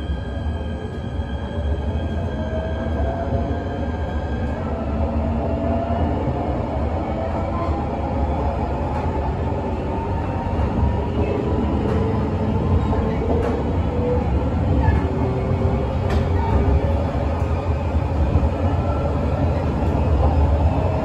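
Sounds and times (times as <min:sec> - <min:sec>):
train running rumble: 0:05.4 - 0:21.0.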